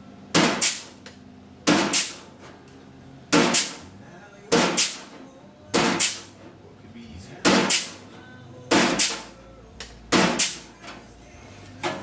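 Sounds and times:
pneumatic tool clacking on metal: 0.4s - 0.9s, 1.7s - 2.2s, 3.4s - 3.8s, 4.6s - 5.1s, 5.8s - 6.3s, 7.5s - 8.0s, 8.8s - 9.3s, 10.1s - 10.6s.

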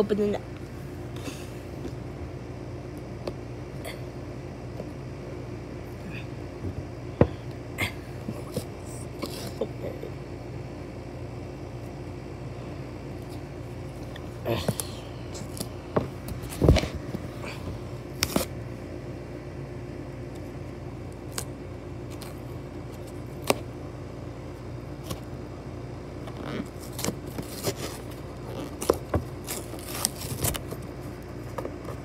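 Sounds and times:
steady low hum: 0.0s - 32.0s
cardboard box scraping and tearing: 26.6s - 30.8s.

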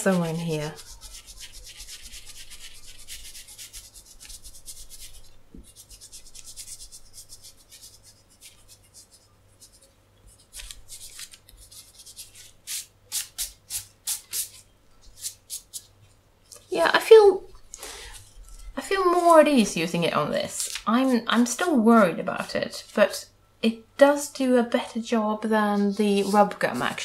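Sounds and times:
eraser scrubbing on paper: 0.0s - 14.6s, 25.9s - 27.0s.

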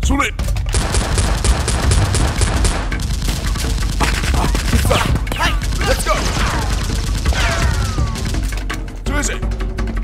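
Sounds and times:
rapid automatic gunfire: 0.7s - 8.6s.

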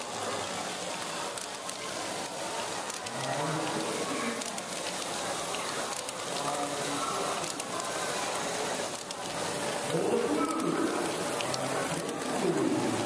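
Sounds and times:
motors and gears whirring: 1.3s - 7.9s.

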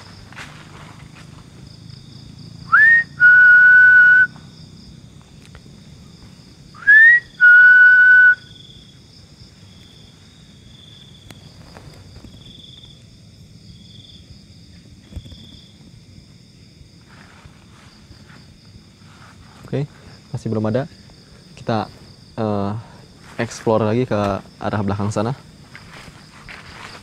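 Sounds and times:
insects shrilling faintly: 0.0s - 27.0s
person whistling loudly: 2.7s - 4.3s, 6.8s - 8.6s.

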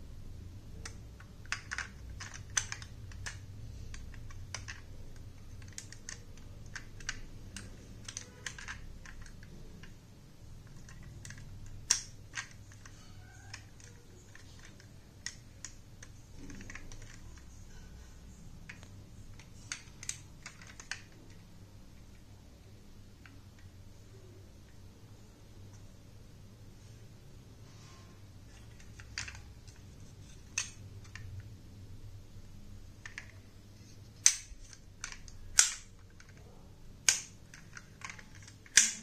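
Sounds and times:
toy car clicks and taps: 0.8s - 9.9s, 10.7s - 17.5s, 34.2s - 36.4s, 37.0s - 39.0s.

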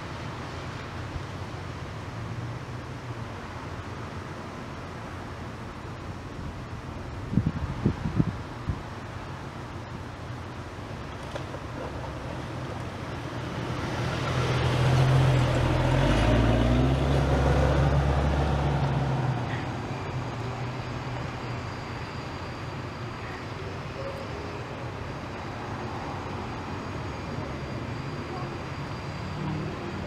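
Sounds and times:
vehicle driving past: 13.2s - 21.9s.

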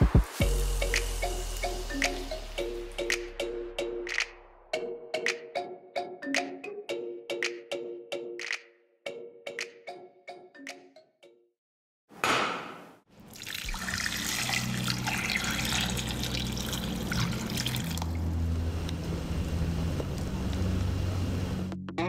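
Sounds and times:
water pouring into a pot: 13.2s - 18.2s.

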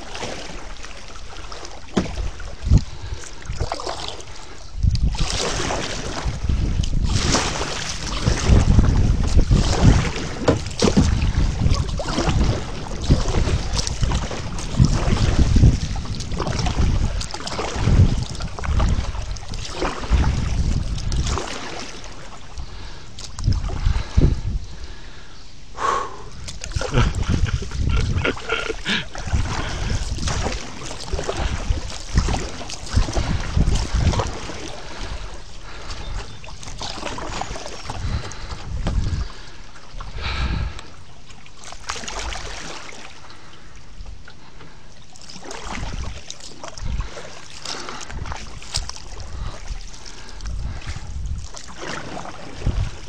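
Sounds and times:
wind buffeting microphone: 0.0s - 41.1s, 45.5s - 53.0s
paddle splashing water: 0.0s - 53.0s
water trickling: 26.4s - 40.8s.

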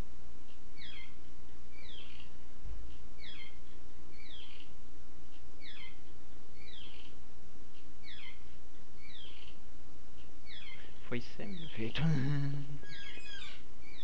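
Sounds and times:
low electrical hum: 0.0s - 14.0s
bird chirping: 0.7s - 14.0s.

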